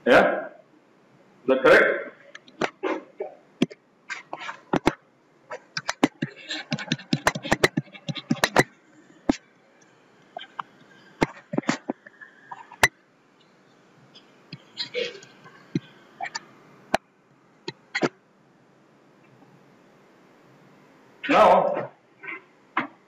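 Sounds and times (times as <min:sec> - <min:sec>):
stylus tapping on tablet screen: 0:05.8 - 0:08.7.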